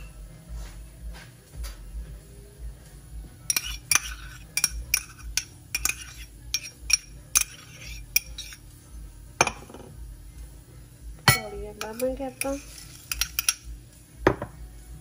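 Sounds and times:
metal spoon clinking in cup: 0:03.5 - 0:08.6, 0:11.3 - 0:13.7.

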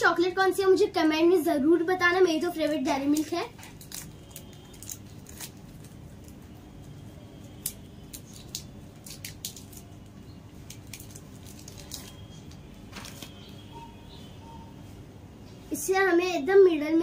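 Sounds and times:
chocolate wrapper crinkling: 0:02.9 - 0:13.6.

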